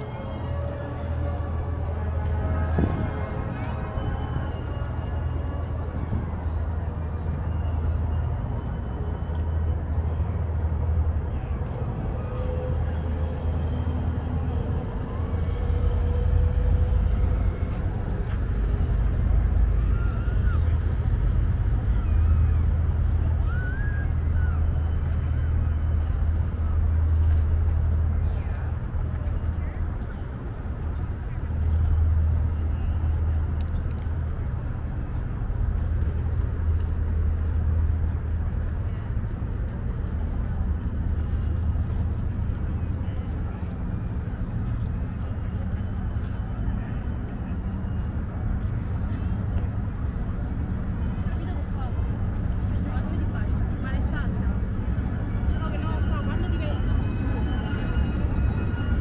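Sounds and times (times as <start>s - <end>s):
city background rumble: 0.0s - 59.0s
people talking: 23.2s - 59.0s.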